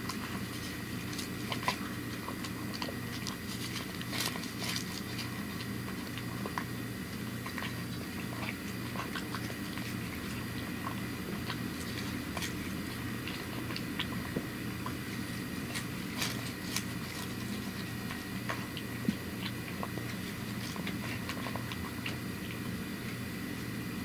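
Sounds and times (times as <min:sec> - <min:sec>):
cat chewing and licking: 0:00.0 - 0:24.0.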